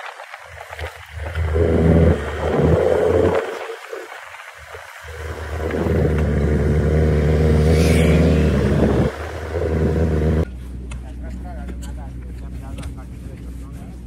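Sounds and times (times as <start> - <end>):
vehicle engine running: 5.0 - 13.2.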